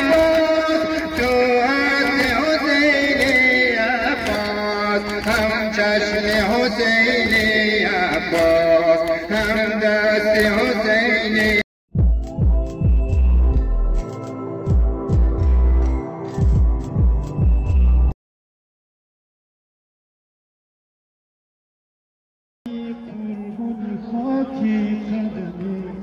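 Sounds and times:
person singing a lament: 0.0 - 11.6, 22.7 - 26.0.

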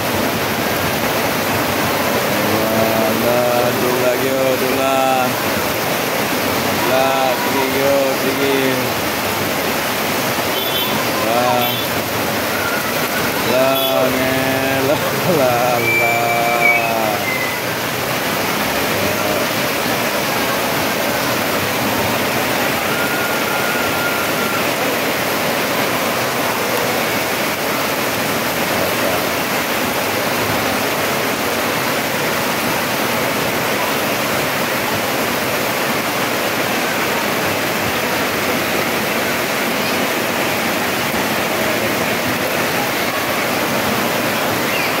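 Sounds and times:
heavy rain falling: 0.0 - 45.0.

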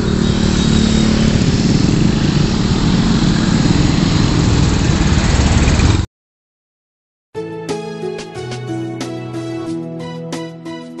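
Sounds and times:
engine running: 0.0 - 6.1
road traffic: 0.0 - 6.1.

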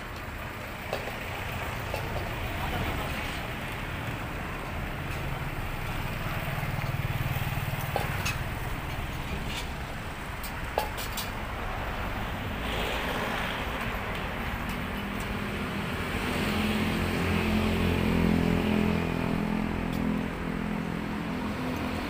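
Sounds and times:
distant engines rumbling: 0.0 - 22.0.

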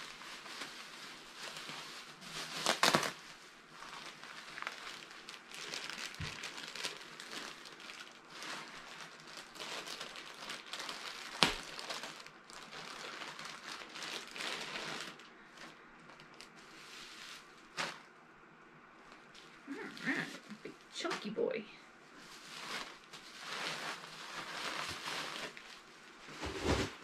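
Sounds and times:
bubble wrap crinkling: 0.0 - 18.1, 19.1 - 27.0
bubble wrap snap: 2.5 - 3.2, 9.3 - 15.2.

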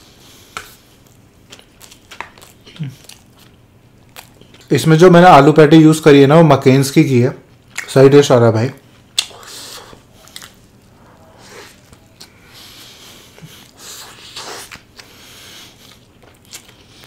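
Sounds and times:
noisy breaths: 0.0 - 1.2, 9.3 - 16.1
wet chewing sounds: 0.6 - 4.7, 9.0 - 17.0.

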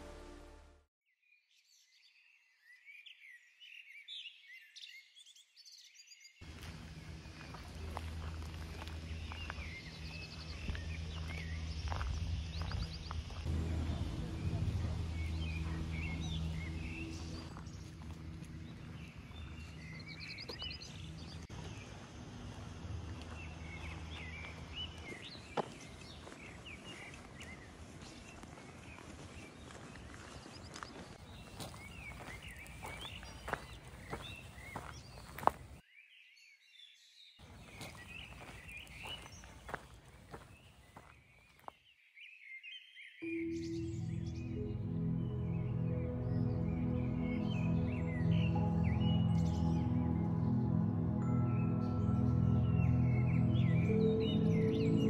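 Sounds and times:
small birds chirping: 1.4 - 55.0
low steady hum: 6.5 - 25.0.

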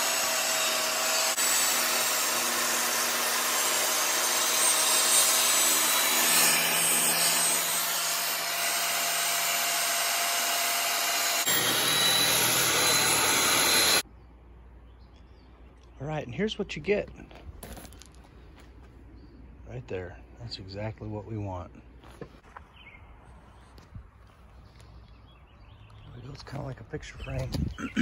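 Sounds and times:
table saw cutting wood: 0.0 - 14.0.

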